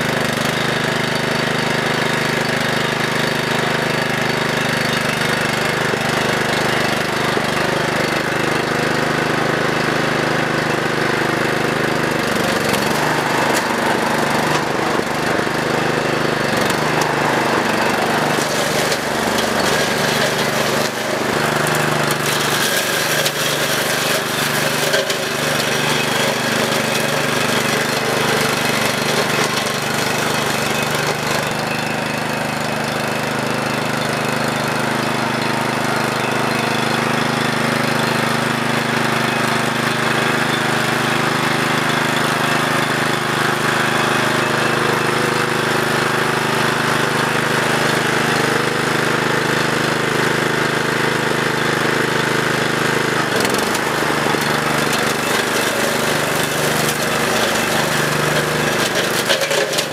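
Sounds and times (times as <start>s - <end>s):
brush mower engine running: 0.0s - 59.9s
blade cutting brush: 11.7s - 31.8s, 53.1s - 59.9s.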